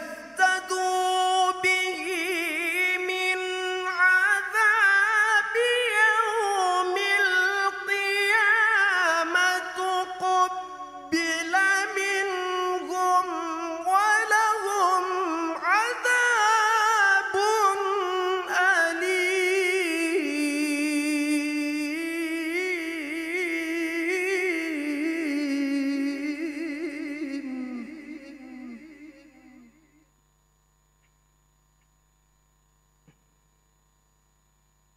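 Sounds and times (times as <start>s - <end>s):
man reciting melodically: 0.0s - 30.0s.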